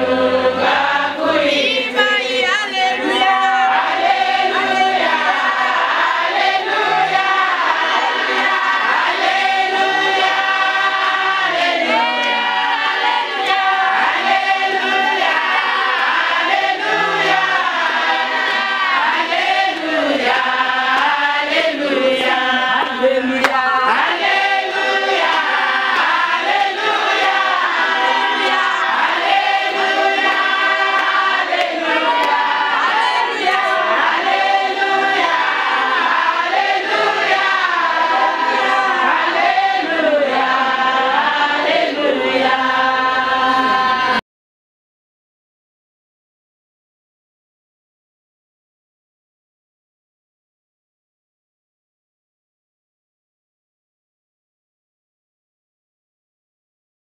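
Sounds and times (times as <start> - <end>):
women's choir singing gospel: 0.0 - 44.2.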